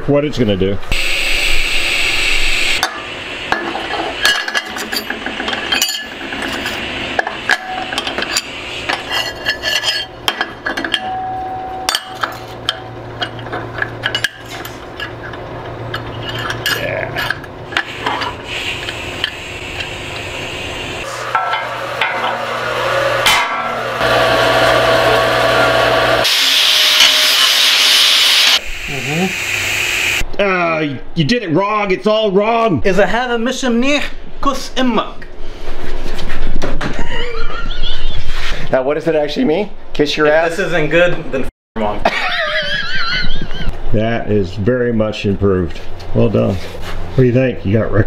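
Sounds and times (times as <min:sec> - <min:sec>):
low electrical hum: 0:00.1 - 0:26.2
harsh hissing: 0:00.9 - 0:03.5, 0:17.8 - 0:21.2, 0:26.1 - 0:30.2
hand tools clinking on metal: 0:04.2 - 0:06.8, 0:07.5 - 0:17.5.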